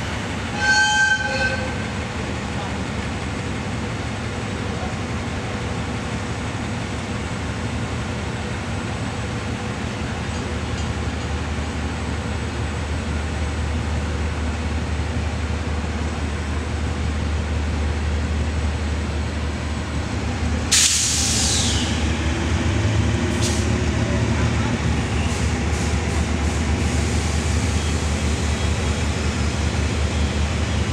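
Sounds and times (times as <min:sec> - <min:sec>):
diesel locomotive humming: 0:00.0 - 0:30.9
compressed air hiss: 0:20.7 - 0:21.9.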